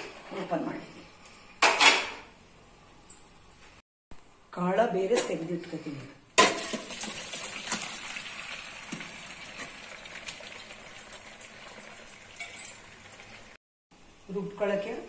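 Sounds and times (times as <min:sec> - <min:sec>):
water gushing through colander: 0:06.7 - 0:13.6.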